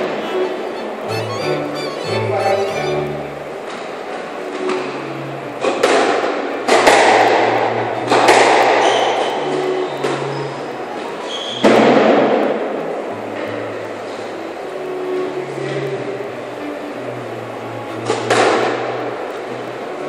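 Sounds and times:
squash ball hitting walls: 0:05.8 - 0:09.1.

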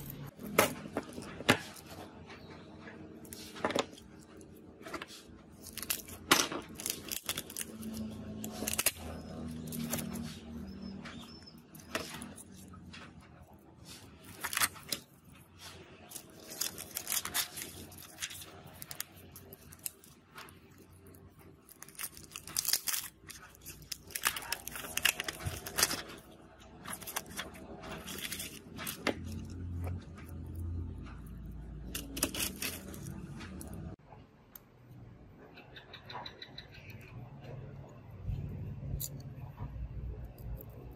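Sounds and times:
handling of plastic sheets: 0:00.0 - 0:34.0
plastic film peeling off glass: 0:03.3 - 0:10.6, 0:11.7 - 0:30.0, 0:31.8 - 0:34.0.

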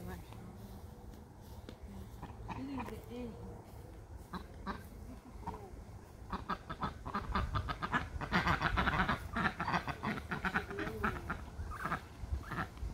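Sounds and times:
ducks quacking: 0:02.1 - 0:03.2, 0:04.2 - 0:12.9.

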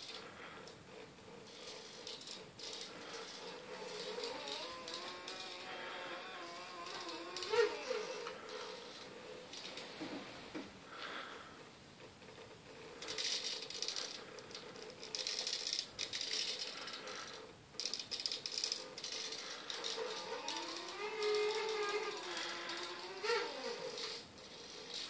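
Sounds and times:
stepper motors humming: 0:02.9 - 0:10.2, 0:19.1 - 0:25.0
robot rattling: 0:12.9 - 0:25.0.

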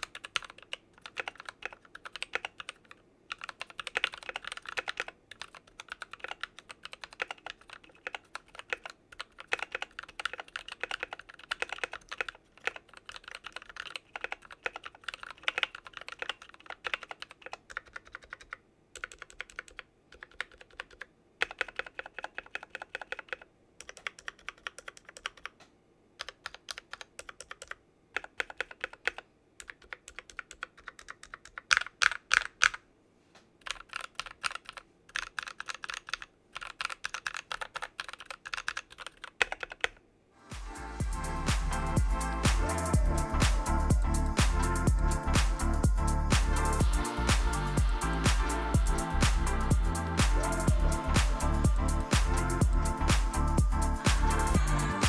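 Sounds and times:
typing on mechanical keyboard: 0:00.0 - 0:25.6, 0:26.2 - 0:32.8, 0:33.6 - 0:40.0.

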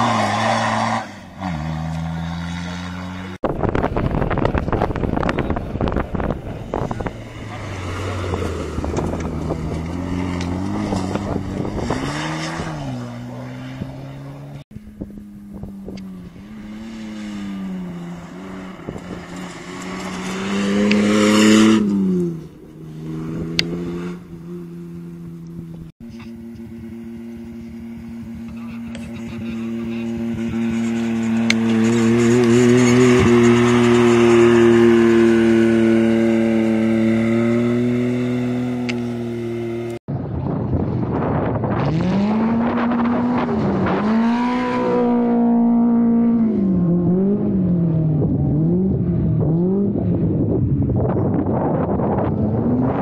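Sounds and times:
rally car engines revving: 0:00.0 - 0:53.0
buggy engine steady note: 0:01.2 - 0:11.8, 0:13.0 - 0:19.2, 0:22.0 - 0:53.0
gravel rattling: 0:03.4 - 0:38.0.

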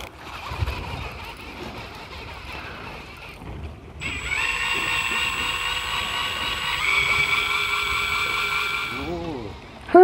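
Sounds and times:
wind noise on microphone: 0:00.2 - 0:05.5
electric motor high whine: 0:04.0 - 0:09.6.

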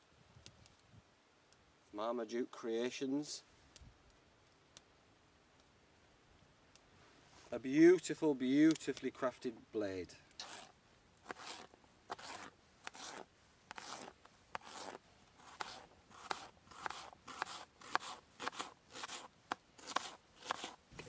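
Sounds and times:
knife chopping on plastic board: 0:15.5 - 0:20.8.

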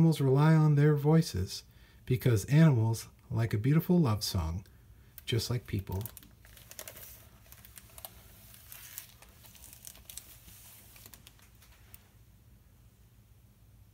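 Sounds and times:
paper rustling: 0:05.3 - 0:12.2.

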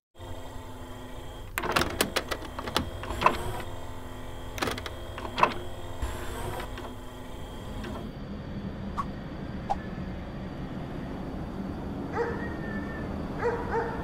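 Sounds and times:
motor whirring: 0:00.1 - 0:08.2.

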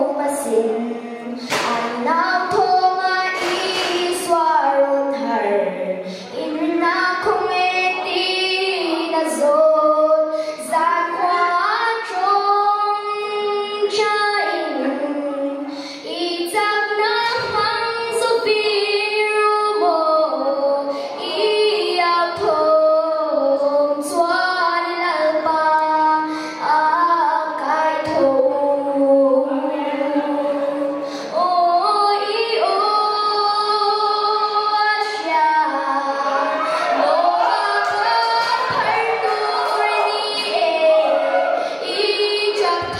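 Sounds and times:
girl singing into microphone: 0:00.0 - 0:42.9
girl breathing: 0:10.3 - 0:10.6, 0:15.7 - 0:16.1, 0:26.2 - 0:26.6, 0:31.0 - 0:31.4, 0:36.6 - 0:37.0, 0:41.6 - 0:41.8.

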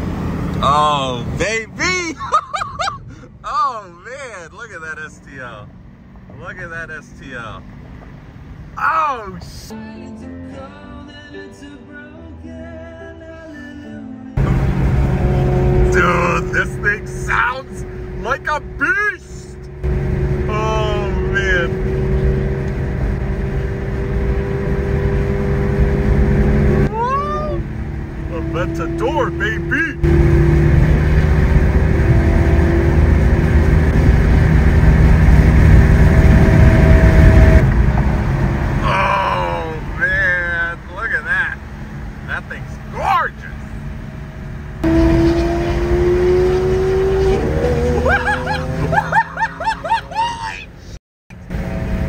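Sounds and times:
car engine drone: 0:00.0 - 0:09.7, 0:14.4 - 0:52.0
road noise: 0:00.0 - 0:10.8, 0:14.4 - 0:52.0
short high-pitched whoops: 0:50.1 - 0:50.7.

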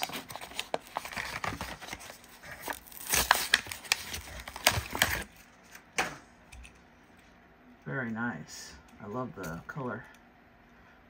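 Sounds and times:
plastic packaging crinkling and tearing: 0:00.0 - 0:05.8.

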